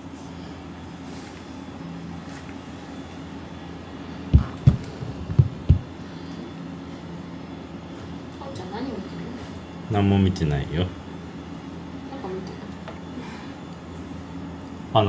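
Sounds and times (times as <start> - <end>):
steady low hum: 0.0 - 15.0
hand patting cat thumps: 4.3 - 5.9.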